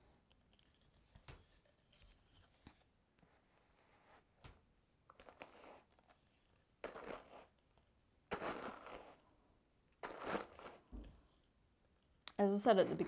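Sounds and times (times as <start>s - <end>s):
hand carders brushing fibre: 8.3s - 9.2s, 10.0s - 10.8s.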